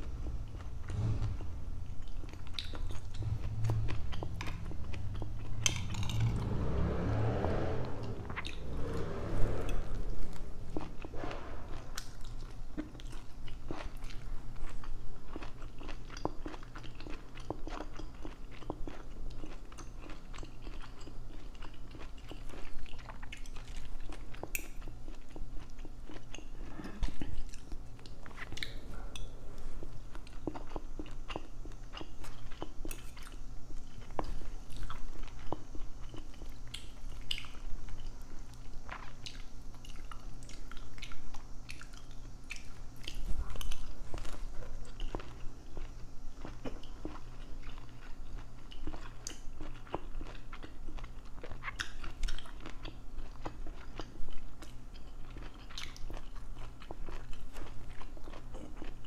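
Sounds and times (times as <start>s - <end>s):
close chewing mouth sounds: 0.0s - 6.4s, 9.6s - 59.0s.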